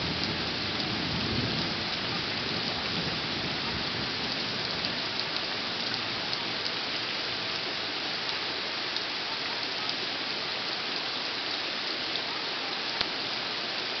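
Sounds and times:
heavy rain on foliage: 0.0s - 14.0s
single raindrops ticking: 12.9s - 13.2s.

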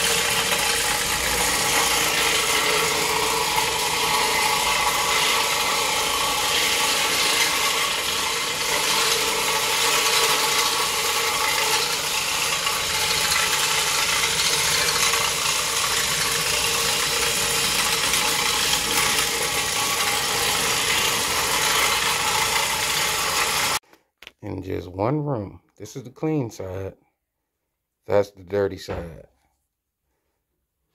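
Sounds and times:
floor machine scrubbing carpet: 0.0s - 23.8s
motor hum: 0.0s - 23.8s.

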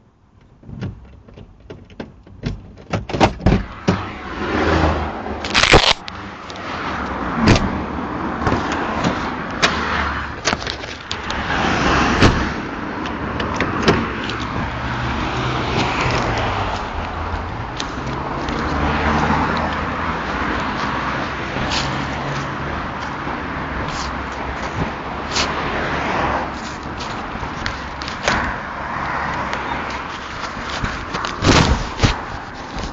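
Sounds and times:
road noise: 0.0s - 32.9s
sharp knocks and clicks: 0.4s - 4.0s.

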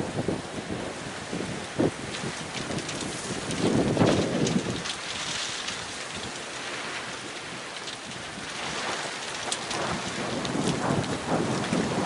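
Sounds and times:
hail pellets hissing on snow: 8.2s - 12.0s.

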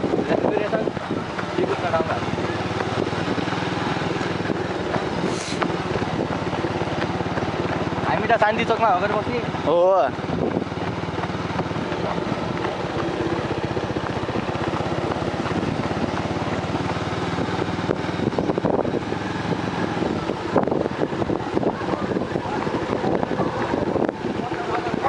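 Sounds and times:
motorcycle engine running: 0.0s - 25.0s
wind buffeting microphone: 0.0s - 25.0s.

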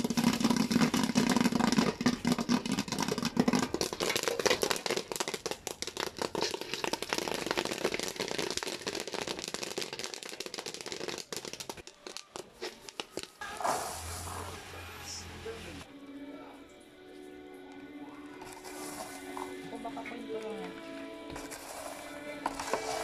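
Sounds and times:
popcorn rattling in a pot: 0.0s - 13.9s, 21.4s - 23.0s
popcorn popping in oil: 0.0s - 14.2s, 21.3s - 23.0s.

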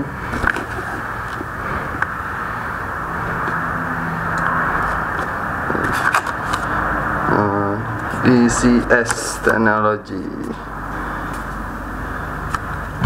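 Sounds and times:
background hum and hiss: 0.0s - 13.0s
clicks of case being handled: 0.3s - 2.1s, 5.2s - 6.7s
person speaking: 7.2s - 10.7s.

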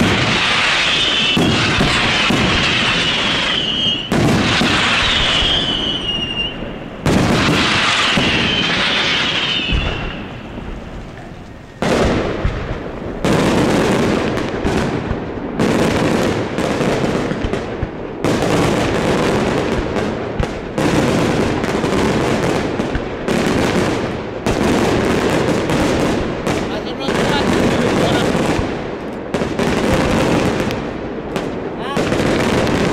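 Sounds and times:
whistling firework shells: 0.0s - 13.7s
fireworks bangs and crackling: 0.0s - 32.9s.

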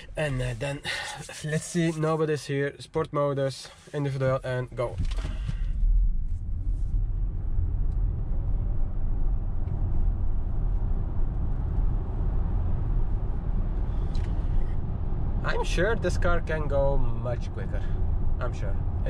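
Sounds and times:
road and tyre rumble: 0.0s - 2.6s, 3.6s - 19.0s.

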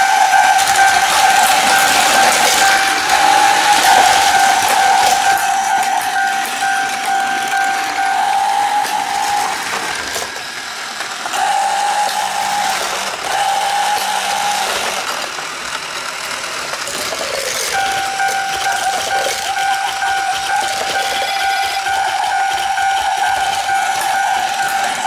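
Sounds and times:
steady high tone: 0.0s - 10.4s, 17.7s - 25.0s
toy train whirring and rattling: 0.0s - 25.0s.

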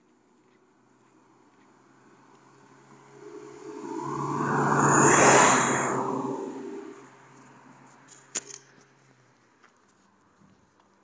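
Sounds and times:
vehicle passing with whoosh: 1.8s - 8.1s
low hum: 2.9s - 7.1s.

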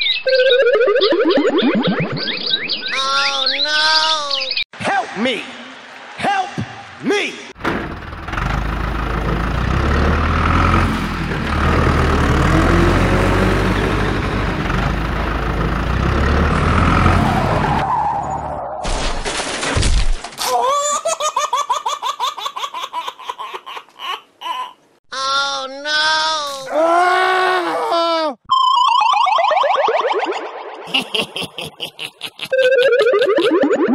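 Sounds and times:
vehicle engine rumble: 7.6s - 17.9s
rapid laughter: 30.9s - 33.7s.

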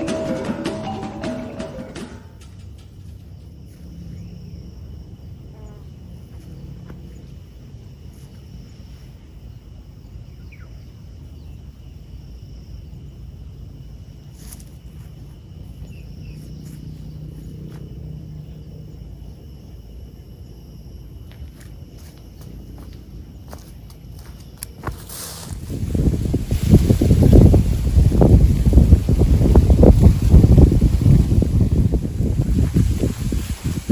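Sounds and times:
insects droning: 0.0s - 33.9s
wind rumble on microphone: 2.5s - 33.9s
faint bird chirps: 10.2s - 11.8s.

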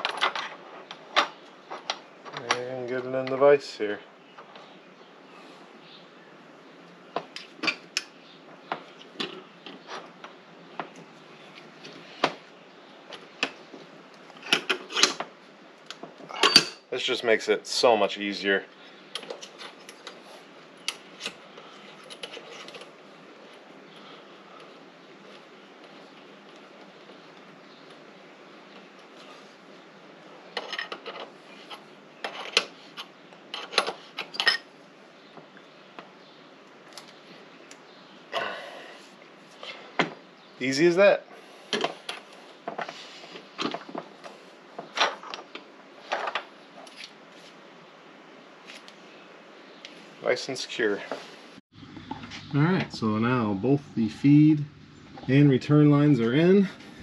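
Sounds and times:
wrench clinking on metal fitting: 16.4s - 16.8s.

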